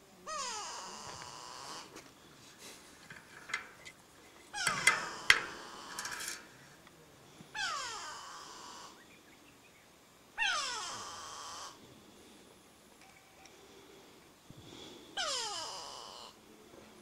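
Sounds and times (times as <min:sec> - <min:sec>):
large animal squealing: 0:04.6 - 0:06.3, 0:07.6 - 0:08.9, 0:10.4 - 0:11.8, 0:15.2 - 0:16.4.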